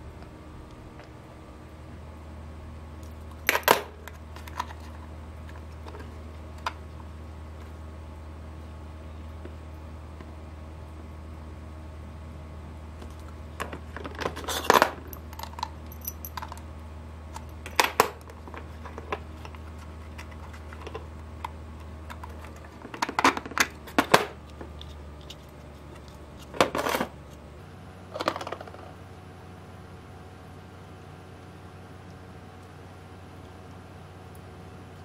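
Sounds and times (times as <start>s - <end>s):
plastic parts clicking and knocking: 28.2s - 28.9s.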